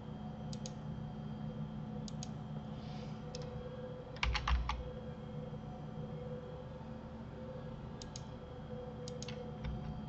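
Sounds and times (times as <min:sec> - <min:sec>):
low hum: 0:00.0 - 0:10.0
computer mouse clicks: 0:00.5 - 0:00.8, 0:02.0 - 0:02.4, 0:03.3 - 0:03.5, 0:08.0 - 0:08.3, 0:09.0 - 0:10.0
keyboard key presses: 0:04.2 - 0:04.8.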